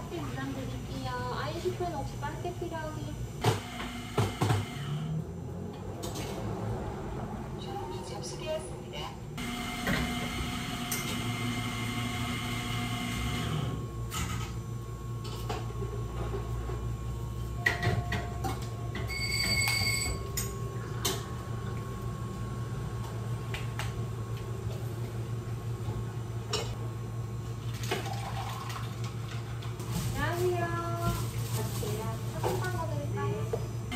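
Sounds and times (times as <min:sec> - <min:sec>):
low machine hum: 0:00.0 - 0:33.9.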